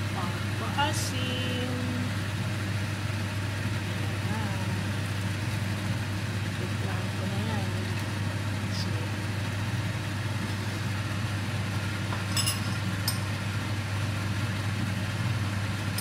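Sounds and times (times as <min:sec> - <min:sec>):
kitchen appliance humming: 0:00.0 - 0:16.0
ringing clinks: 0:12.3 - 0:13.2.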